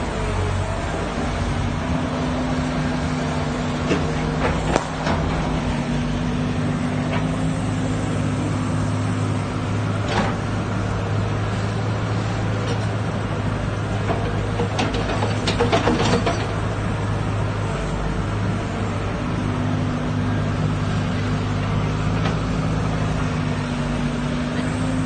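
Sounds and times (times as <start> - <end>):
diesel engine running: 0.0 - 25.0.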